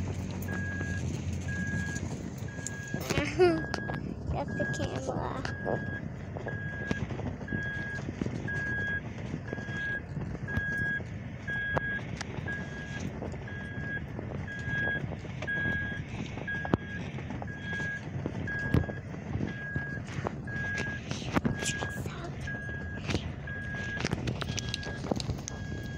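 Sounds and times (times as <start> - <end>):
truck rumbling over rough ground: 0.0 - 25.9
warning chime beeping: 0.4 - 6.9, 19.5 - 24.0.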